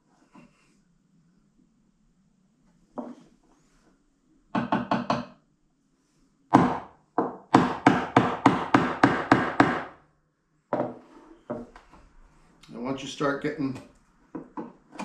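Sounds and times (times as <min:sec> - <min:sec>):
wooden mallet striking chisel: 0:06.5 - 0:10.0.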